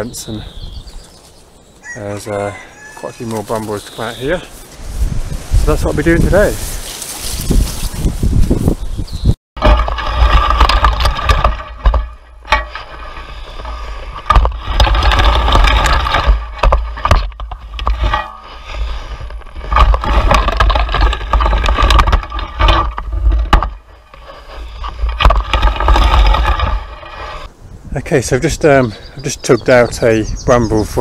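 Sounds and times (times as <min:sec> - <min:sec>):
rake scraping through brambles: 0:01.3 - 0:08.9, 0:09.6 - 0:27.5
camera shaking rumble: 0:04.9 - 0:27.5.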